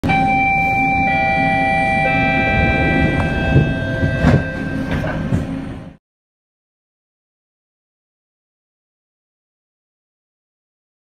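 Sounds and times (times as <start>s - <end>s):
electric traction whine: 0.0s - 6.0s
train rumbling: 0.2s - 6.0s.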